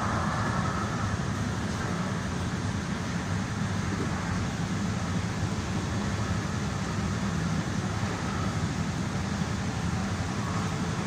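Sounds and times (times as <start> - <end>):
train rumbling on rails: 0.0 - 11.0.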